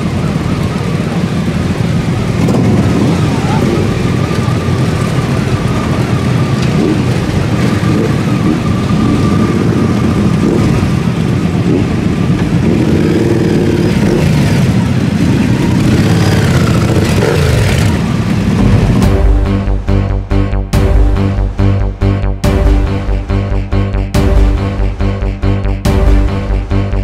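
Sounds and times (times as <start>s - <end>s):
motorcycle engines revving: 0.0s - 19.4s.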